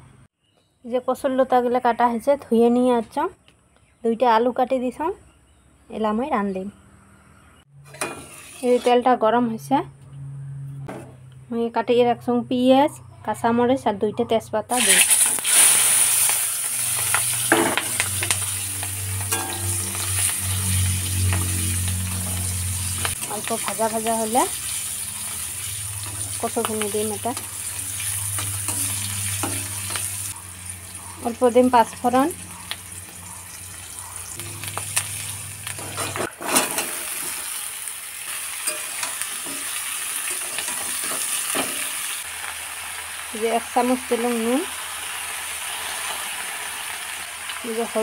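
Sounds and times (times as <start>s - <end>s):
metal spatula scraping pan: 7.9s - 9.1s, 17.0s - 23.6s, 27.2s - 30.3s, 34.3s - 37.5s
spices landing in hot oil: 14.7s - 20.4s
onions sizzling in hot oil: 14.7s - 48.0s.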